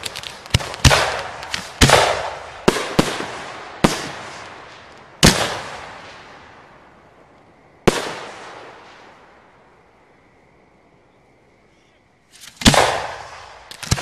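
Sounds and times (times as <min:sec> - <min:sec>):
firework shells booming: 0:00.0 - 0:06.8, 0:07.8 - 0:09.2, 0:12.4 - 0:14.0.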